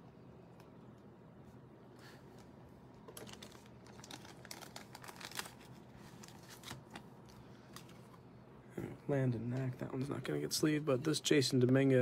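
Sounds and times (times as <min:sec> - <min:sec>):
plastic sleeve crinkling: 0:02.4 - 0:08.0.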